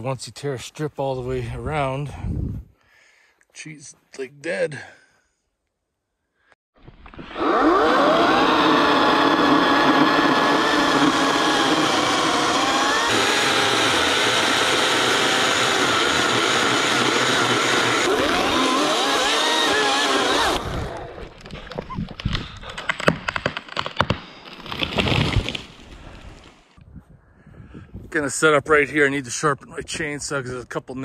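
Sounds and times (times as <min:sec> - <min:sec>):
electric chainsaw cutting wood: 0:06.8 - 0:21.4.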